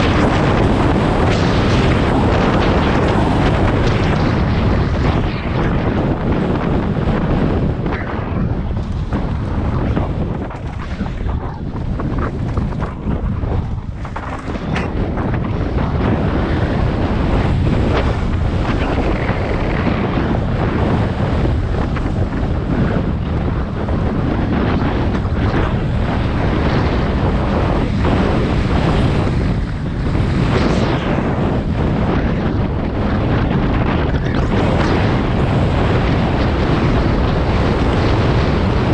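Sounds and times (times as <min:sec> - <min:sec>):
wind over microphone: 0:00.0 - 0:38.9
bike knocking and rattling: 0:08.7 - 0:15.6.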